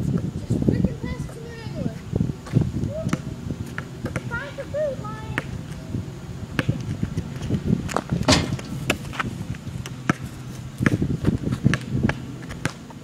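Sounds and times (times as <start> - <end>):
basketball bouncing on asphalt: 2.4 - 4.7, 5.3 - 5.6, 6.6 - 13.0
sneakers stepping and scuffing: 6.6 - 11.9.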